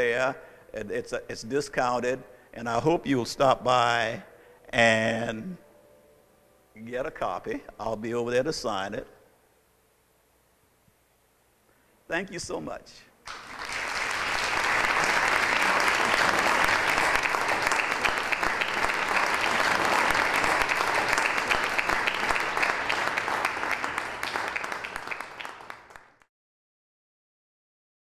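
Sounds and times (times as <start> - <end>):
audience applauding: 13.3 - 26.3.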